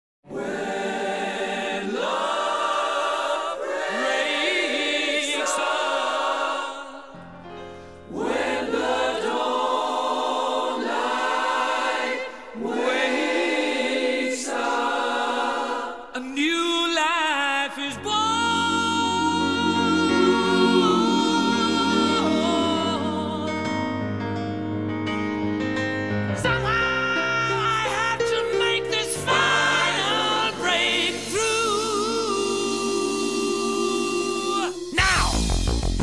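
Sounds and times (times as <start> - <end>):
a cappella group singing: 0.3 - 24.1, 26.4 - 35.4.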